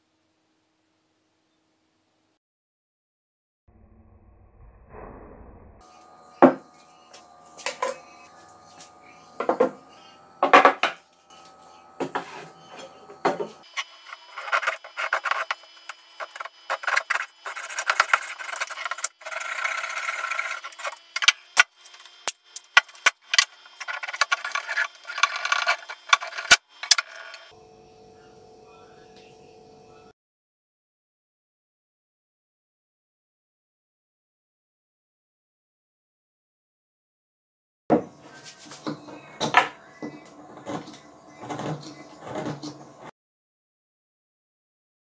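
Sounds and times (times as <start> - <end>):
knife scraping plastic: 11.4 - 27.5, 38.3 - 43.1.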